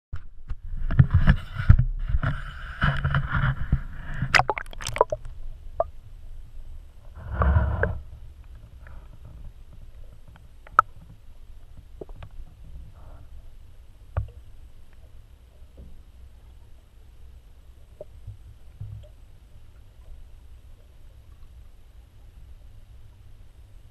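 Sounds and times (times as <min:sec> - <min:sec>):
muffled underwater sounds: 0:00.6 - 0:23.9
camera knocking and rubbing: 0:00.8 - 0:05.1
water splashing: 0:04.2 - 0:05.9.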